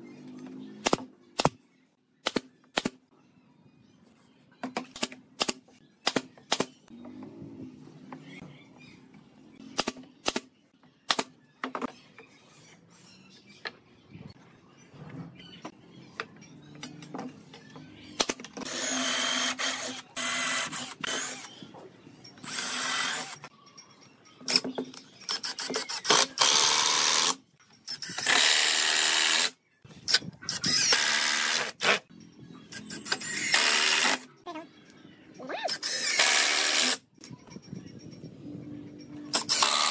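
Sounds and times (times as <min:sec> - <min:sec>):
cordless drill driving screws: 0:18.7 - 0:21.5, 0:22.4 - 0:23.4, 0:33.1 - 0:34.2, 0:35.8 - 0:37.0, 0:39.4 - 0:39.9.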